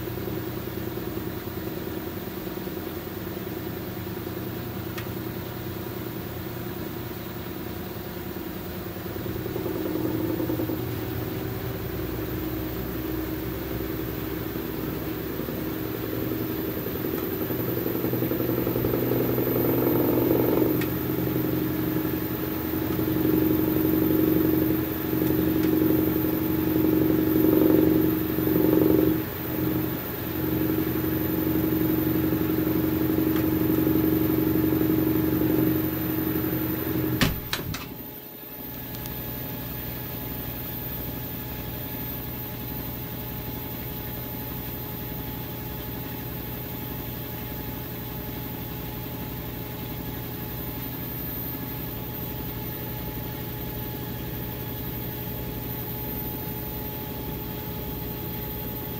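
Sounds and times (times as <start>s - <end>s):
washing machine motor hum: 0.0s - 58.9s
washing machine clicks: 37.1s - 38.0s.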